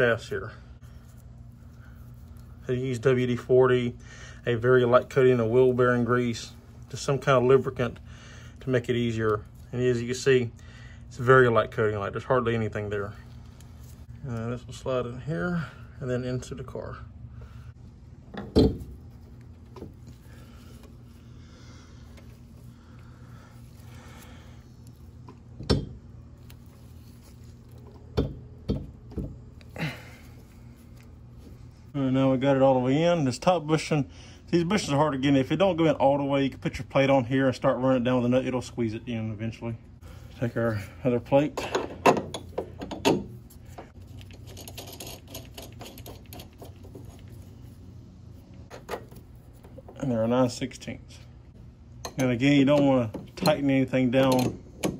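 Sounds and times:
low steady hum: 0.0 - 54.9.

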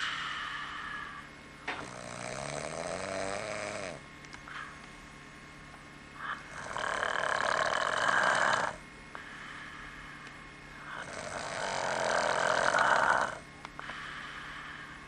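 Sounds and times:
man snoring: 0.6 - 4.0, 6.2 - 8.8, 10.8 - 13.5.

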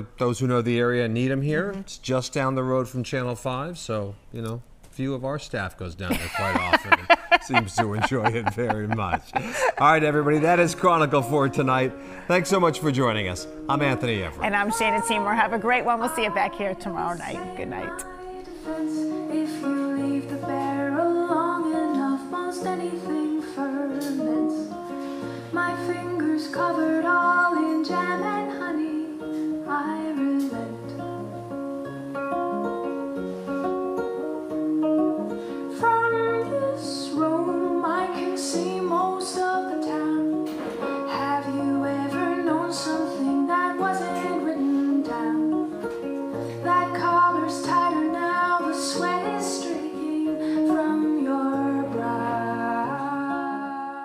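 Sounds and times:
woman singing: 14.4 - 24.9, 25.5 - 31.3, 35.7 - 45.9, 46.6 - 54.0
fingerpicked acoustic guitar: 16.1 - 54.0.

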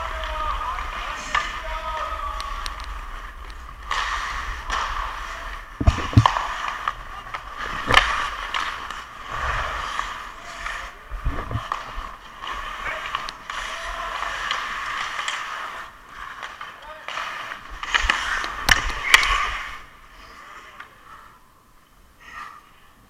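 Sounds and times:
skate blades scraping ice: 0.0 - 21.0
sharp knocks: 5.8 - 6.4.

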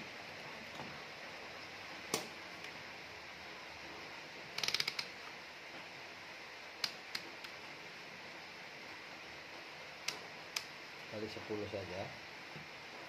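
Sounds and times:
rotary selector clicking: 4.6 - 5.1.

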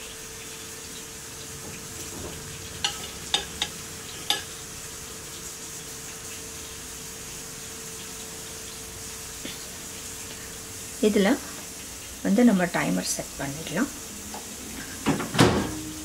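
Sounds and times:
chicken sizzling in oil: 0.0 - 15.0
metal grill rack clinking: 2.1 - 4.5.

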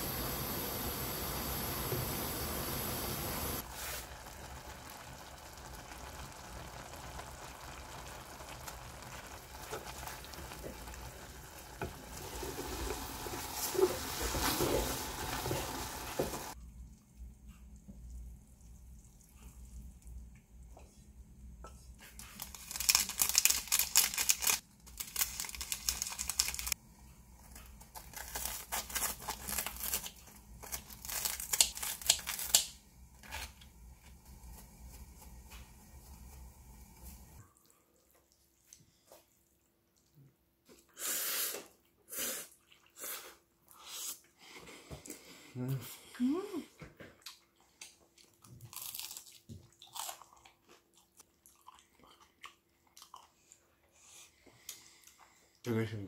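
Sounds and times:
noodles boiling with a hiss: 0.0 - 37.6, 40.6 - 46.6
scissors snipping crispy crust: 27.6 - 33.6.

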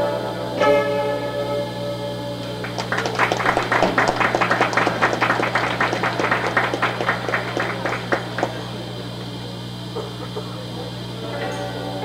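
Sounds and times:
audience clapping: 2.6 - 9.2.

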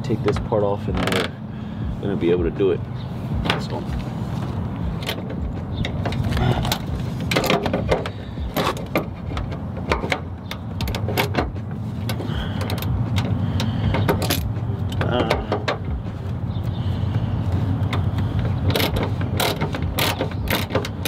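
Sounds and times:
hand ratchet clicking: 5.0 - 15.9, 17.8 - 21.0.

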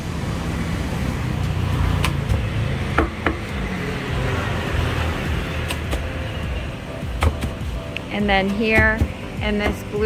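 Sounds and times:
road traffic rumble: 0.0 - 10.0
cleaver chopping on wooden block: 2.0 - 3.5, 7.2 - 7.6, 8.5 - 9.9.

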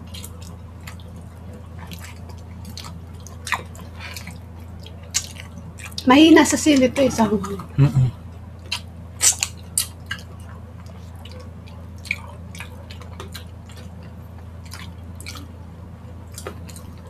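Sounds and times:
steady low hum: 0.0 - 17.0
wet chewing and sucking: 0.1 - 6.0, 8.7 - 15.5.

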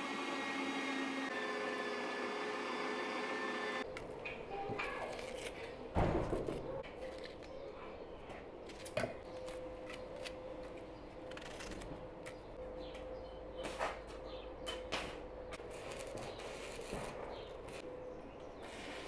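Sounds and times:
knife scraping onion skin: 4.8 - 7.5, 11.2 - 12.3.

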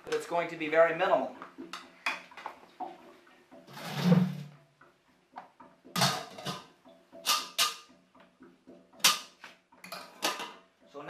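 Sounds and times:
metal bucket clanking: 1.6 - 4.7, 5.8 - 8.0, 8.7 - 11.0.

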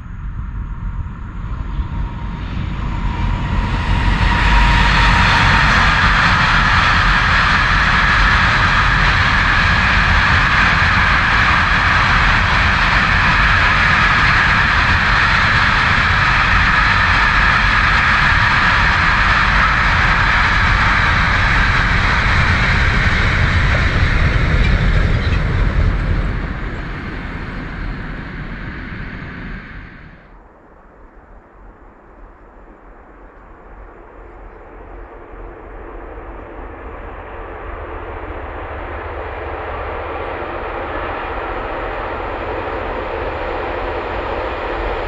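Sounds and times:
train wheels rumbling on rails: 0.0 - 30.3.

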